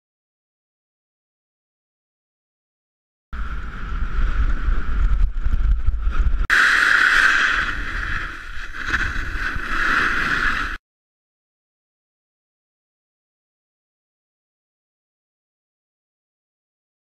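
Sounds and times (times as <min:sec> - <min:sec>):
snowboard scraping over snow: 0:03.4 - 0:10.8
wind on microphone: 0:03.4 - 0:10.8.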